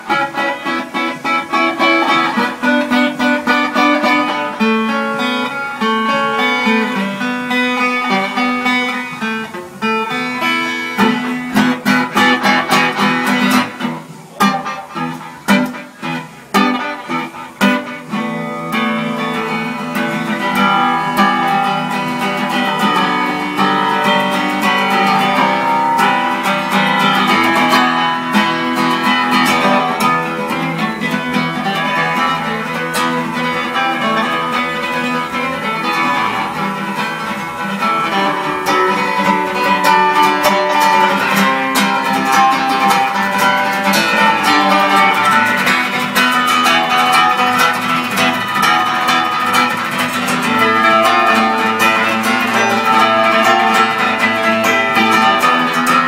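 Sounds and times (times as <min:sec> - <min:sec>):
acoustic guitar playing: 0:00.0 - 0:56.0.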